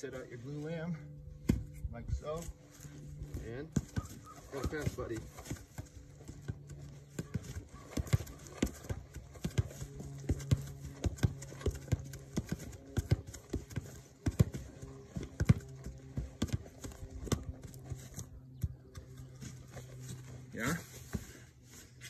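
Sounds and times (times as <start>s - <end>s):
ball knocking against boot and wood: 3.8s - 17.8s.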